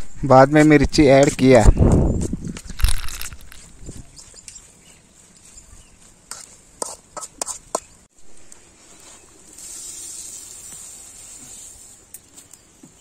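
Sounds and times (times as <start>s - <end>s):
steady hiss: 8.2s - 13.0s.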